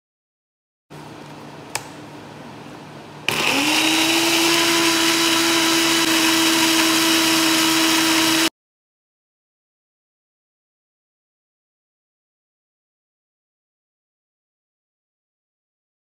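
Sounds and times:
sharp click: 1.7 - 2.0
electric blender running: 3.3 - 8.5.

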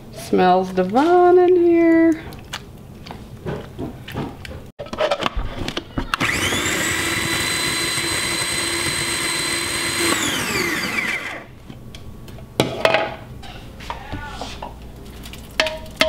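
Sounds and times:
food processor motor whine: 6.2 - 11.6.

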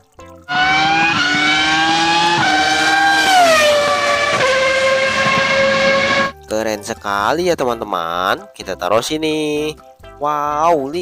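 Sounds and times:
race car engine whine: 0.5 - 6.3.

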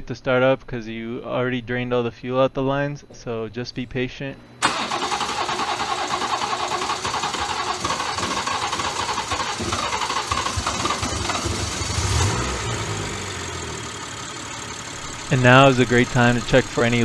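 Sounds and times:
car engine cranking and starting: 4.6 - 17.0.

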